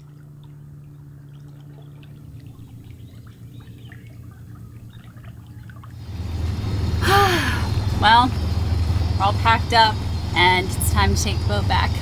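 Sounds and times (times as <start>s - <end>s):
steady low hum: 0.0s - 12.0s
water trickling and lapping: 0.0s - 12.0s.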